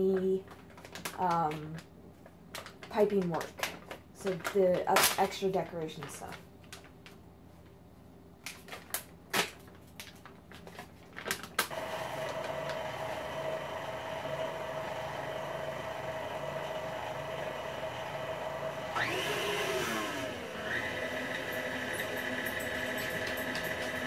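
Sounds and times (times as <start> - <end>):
plastic bag crinkling: 0.0 - 7.8, 8.4 - 12.9
stand mixer whisking: 11.7 - 24.0.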